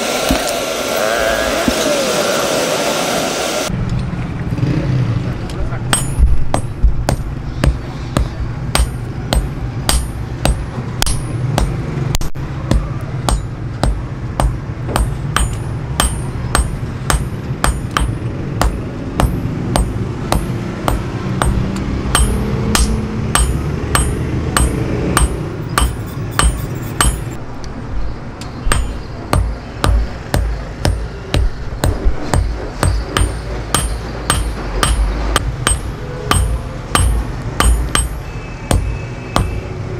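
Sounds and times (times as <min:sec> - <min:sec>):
hammer ringing on anvil: 0:05.9 - 0:07.3, 0:13.3 - 0:27.4, 0:28.7 - 0:30.0, 0:30.8 - 0:39.6.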